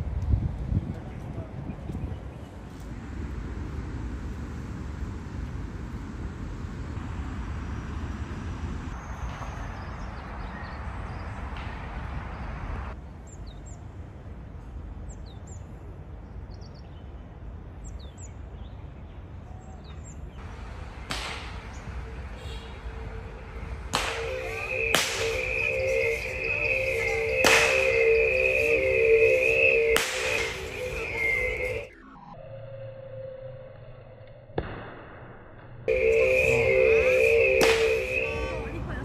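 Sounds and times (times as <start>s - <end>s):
low outdoor rumble: 0.0s - 9.0s
high bird chirps: 24.2s - 31.9s.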